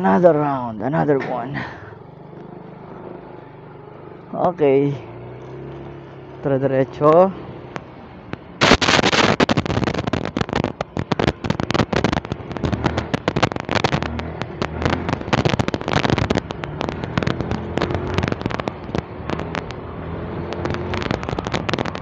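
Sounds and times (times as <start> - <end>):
wind crackling on microphone: 7.8 - 22.0.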